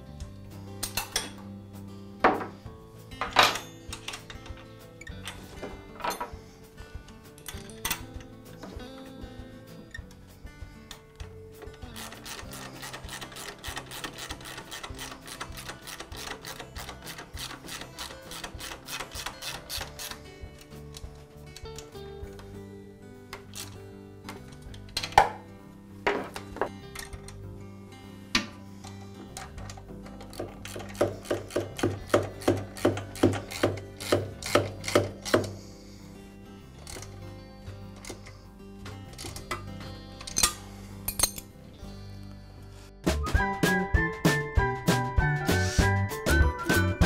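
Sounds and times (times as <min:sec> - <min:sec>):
background music: 0:00.0 - 0:47.0
ratchet wrench clicking: 0:11.7 - 0:20.4, 0:28.9 - 0:35.6.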